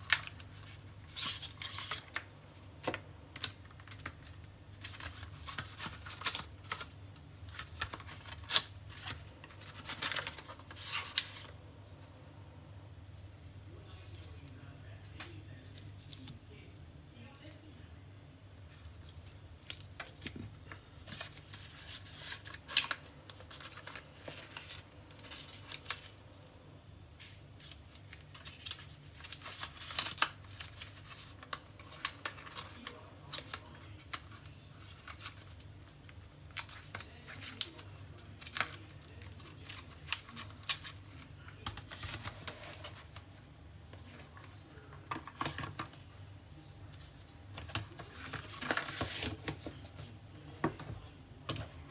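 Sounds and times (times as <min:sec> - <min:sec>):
faint low hum: 0:00.0 - 0:51.9
hands unpacking cardboard box: 0:47.6 - 0:50.0.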